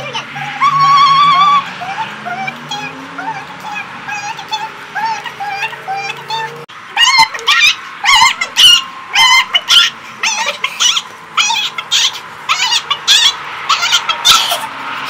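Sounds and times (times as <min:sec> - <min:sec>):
girls whooping and yelping: 0:00.0 - 0:02.2, 0:07.0 - 0:14.7.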